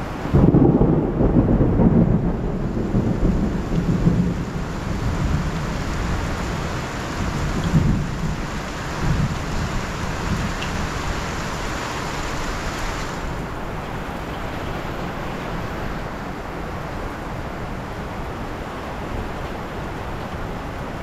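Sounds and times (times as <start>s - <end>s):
thunder rumbling: 0.0s - 12.4s
steady rain: 0.0s - 21.0s.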